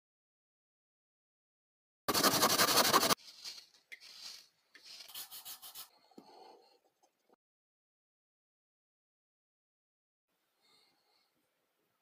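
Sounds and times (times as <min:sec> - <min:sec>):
wood rubbing by hand: 0:02.1 - 0:05.9.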